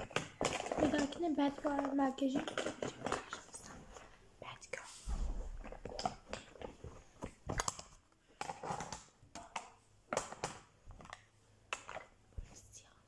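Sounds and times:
makeup items clicking in a bag: 0.0s - 3.7s.

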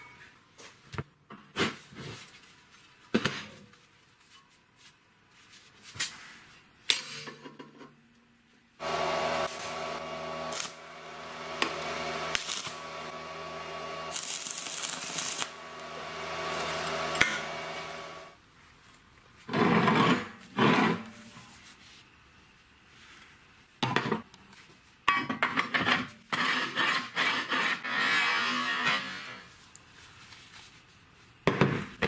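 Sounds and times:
arc welding crackling hiss: 8.8s - 18.4s.

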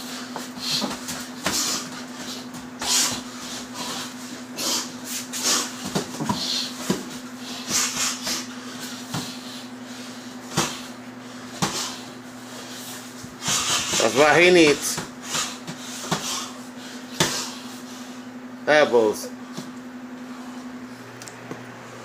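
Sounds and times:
gloved punches thudding on heavy bag: 11.6s - 11.9s.

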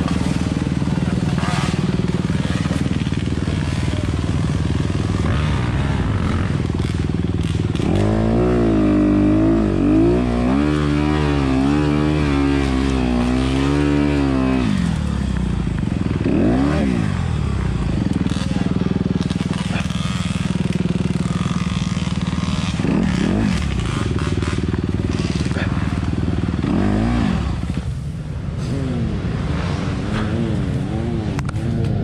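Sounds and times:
dirt bike engine revving: 0.0s - 32.0s.

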